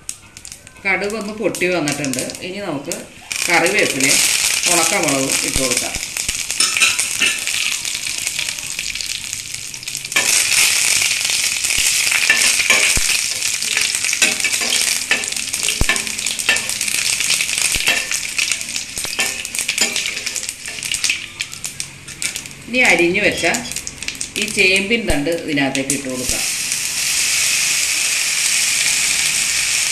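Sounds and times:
mustard seeds popping: 0:00.0 - 0:23.0
spices sizzling in hot oil: 0:00.0 - 0:29.9
metal spoon scraping a pan: 0:03.3 - 0:08.8, 0:09.8 - 0:21.3.

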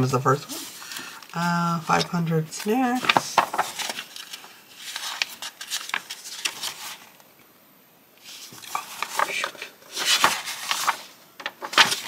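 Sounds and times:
paper rustling and crackling: 0:00.5 - 0:07.2, 0:08.2 - 0:12.0.

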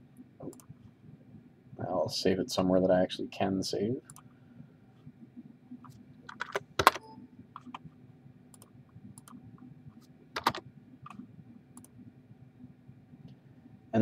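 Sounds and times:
keyboard and mouse clicking: 0:06.3 - 0:07.9, 0:08.5 - 0:09.4, 0:10.4 - 0:11.2.

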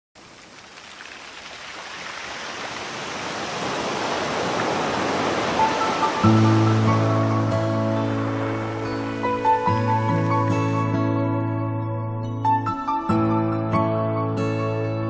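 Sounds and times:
wash of noise: 0:00.2 - 0:10.7.

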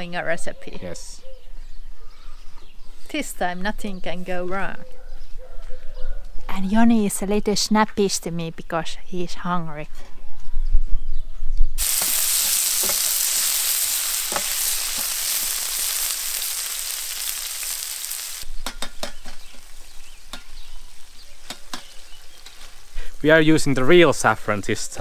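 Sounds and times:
vegetables sizzling in a pan: 0:11.8 - 0:24.0
metal spatula scraping a pan: 0:18.5 - 0:22.9.

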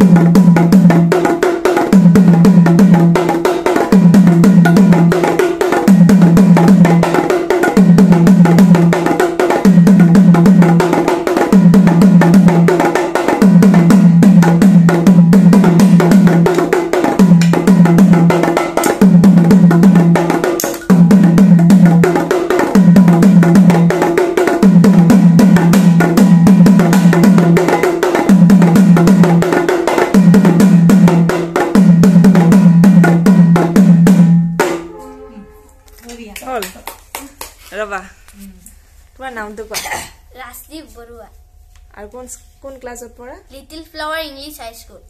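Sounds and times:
drums played with sticks: 0:00.0 - 0:35.5.

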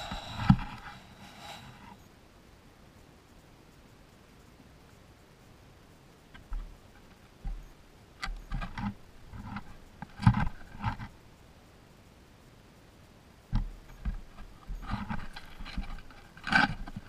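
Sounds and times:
knocks and scrapes on camera: 0:00.0 - 0:01.9, 0:08.4 - 0:11.1, 0:13.6 - 0:17.0.

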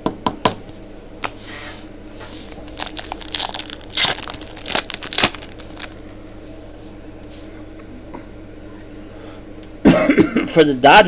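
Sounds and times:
card packaging crinkling and tearing: 0:02.5 - 0:06.2.

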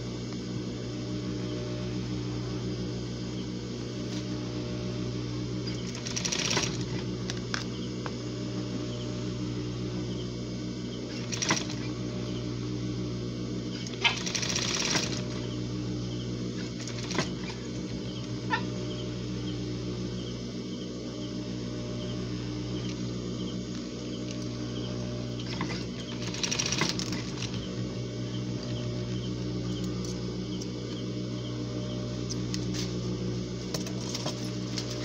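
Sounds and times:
sewing machine motor humming: 0:03.3 - 0:35.0
sewing machine stitching: 0:05.6 - 0:07.1, 0:11.1 - 0:12.0, 0:13.7 - 0:15.6, 0:16.6 - 0:18.1, 0:25.3 - 0:27.8.

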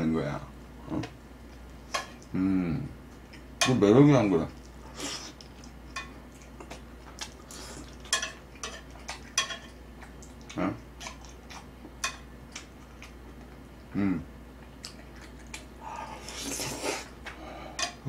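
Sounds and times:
metal tongs clinking on cookware: 0:08.0 - 0:08.8, 0:09.4 - 0:09.7.

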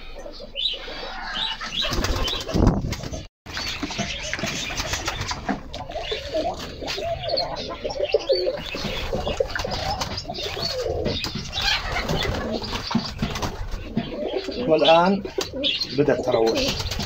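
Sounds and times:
pigeons cooing: 0:00.0 - 0:17.0
wing flaps: 0:01.6 - 0:07.1, 0:08.6 - 0:14.0.

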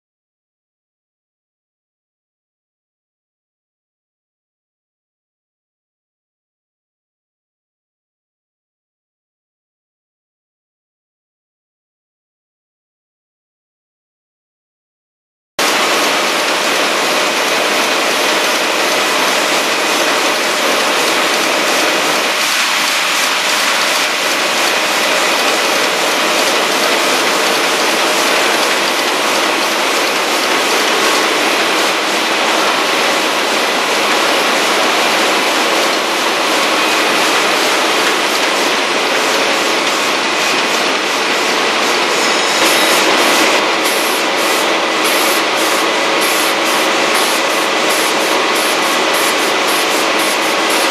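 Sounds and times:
machine whining tones: 0:15.6 - 0:50.9
printing press clatter: 0:15.6 - 0:50.9.

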